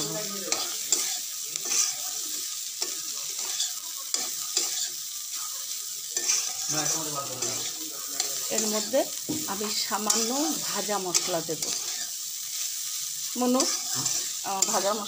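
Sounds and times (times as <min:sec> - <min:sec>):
food sizzling in oil: 0:00.0 - 0:15.0
spatula scraping a steel pan: 0:06.2 - 0:08.9, 0:11.1 - 0:12.2, 0:13.6 - 0:14.8.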